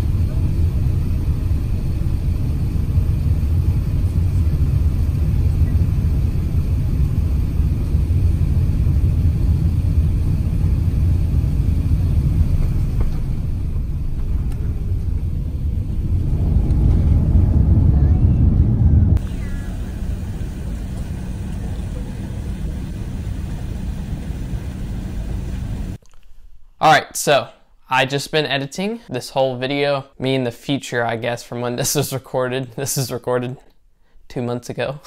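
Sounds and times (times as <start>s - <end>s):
aircraft cabin rumble: 0.0s - 26.0s.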